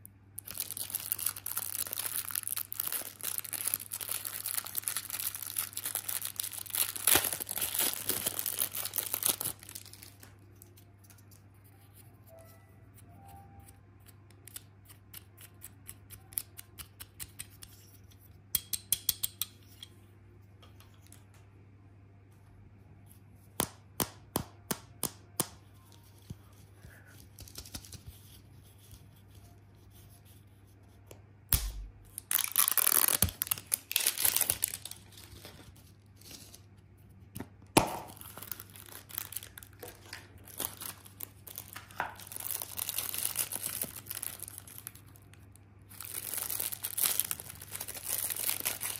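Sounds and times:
plastic wrapping crinkling and tearing: 0.4 - 11.4, 32.1 - 36.7, 37.8 - 48.9.

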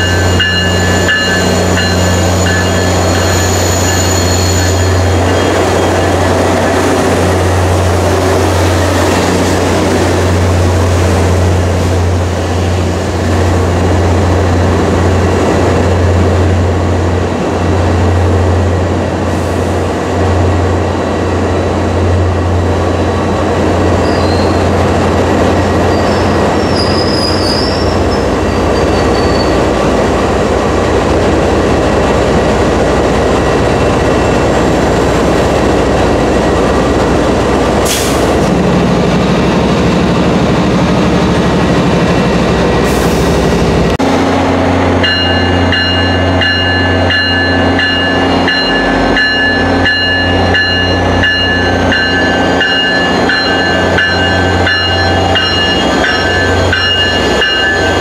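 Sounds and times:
high wheel squeal: 0.0 - 6.7, 24.0 - 24.7, 25.8 - 29.7
diesel locomotive drone: 0.0 - 58.0
train coaches rolling past: 0.0 - 58.0.

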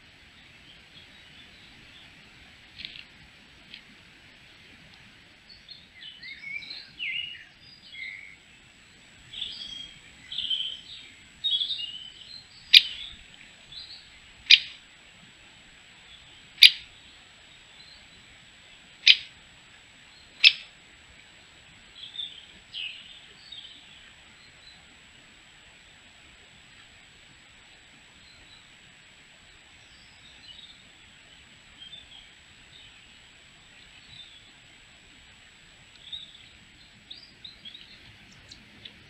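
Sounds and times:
small songbirds chirping: 0.0 - 25.0, 28.0 - 39.0
woodpecker kik calls: 9.3 - 13.3, 14.4 - 14.8, 16.6 - 17.0, 19.0 - 19.4, 20.4 - 20.7.

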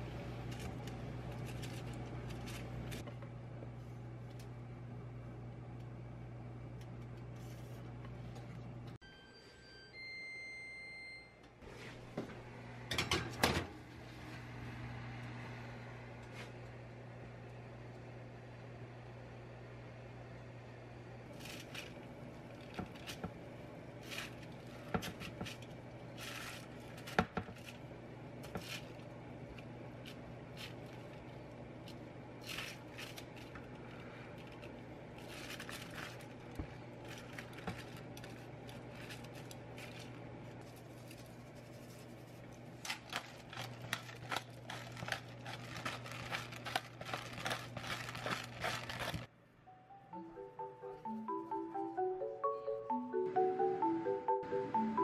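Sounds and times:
steady low hum: 0.0 - 55.0
foil crinkling: 0.5 - 3.0, 24.0 - 27.8, 30.0 - 49.3.

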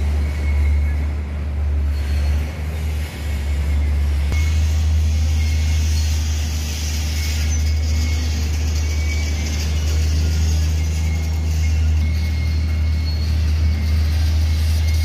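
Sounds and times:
heavy machinery engine rumble: 0.0 - 15.0
hiss: 4.3 - 10.2.

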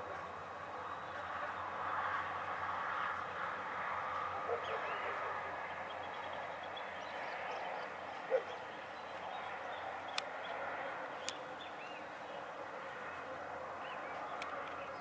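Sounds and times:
sharp clicks: 10.1 - 10.4.

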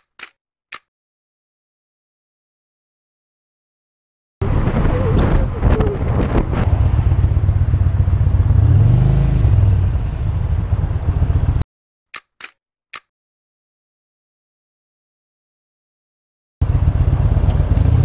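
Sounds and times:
wind and road noise: 4.4 - 11.6, 16.6 - 18.0
motorcycle engine running: 6.7 - 11.6.

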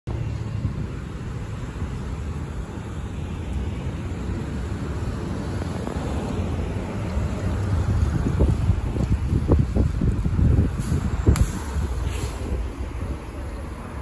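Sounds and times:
bus approaching: 0.1 - 14.0
street traffic rumble: 0.1 - 14.0.

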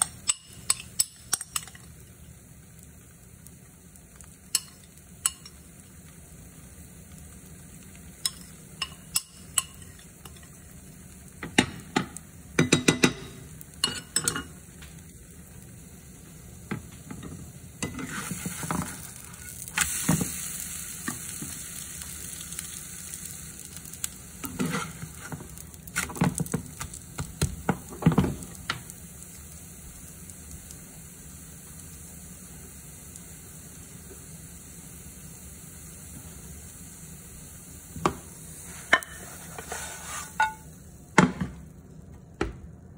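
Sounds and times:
batter sizzling in a pan: 0.0 - 42.9
metal spatula scraping a pan: 17.8 - 20.0, 24.4 - 26.1, 38.7 - 40.7.

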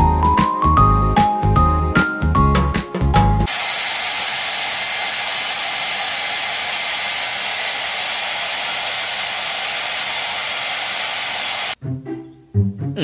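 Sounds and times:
hair dryer running: 3.5 - 11.8.

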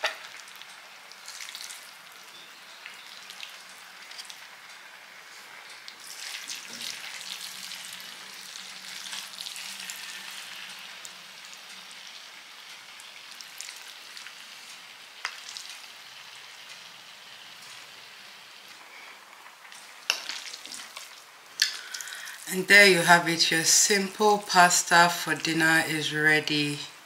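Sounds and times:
spoons stirring wet spaghetti: 0.0 - 2.0, 2.9 - 16.9, 19.4 - 22.5.

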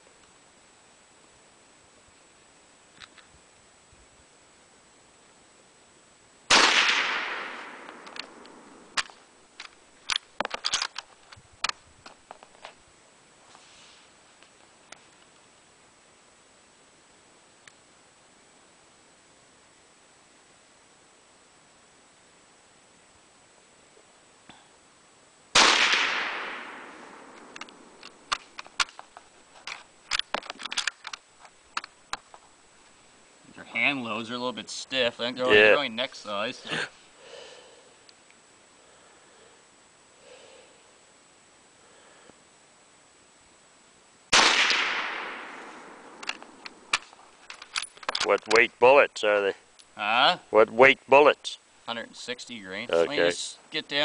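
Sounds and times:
rifle shot: 6.5 - 9.1, 25.5 - 28.9, 44.3 - 47.0
rifle bolt metallic clicks: 46.1 - 48.6.

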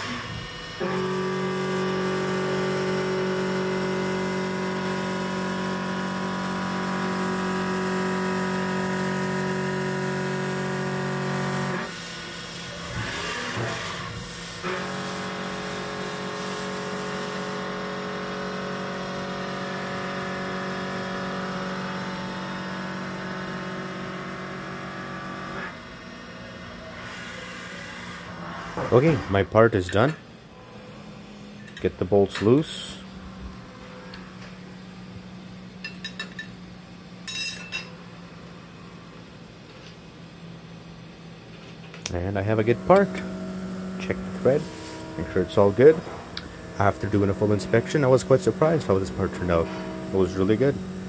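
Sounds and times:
machine running noise: 0.0 - 51.0
mill cutting metal ringing: 42.5 - 51.0.

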